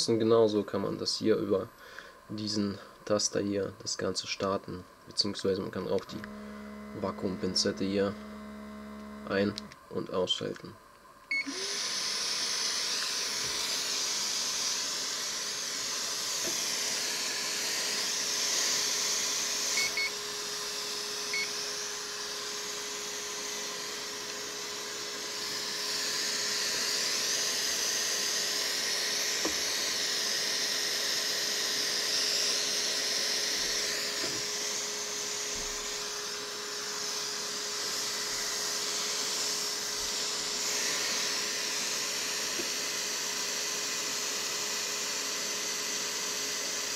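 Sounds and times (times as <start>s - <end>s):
thin blower whine: 5.2s - 9.8s, 11.3s - 46.9s
hot air rushing hiss: 11.5s - 43.6s.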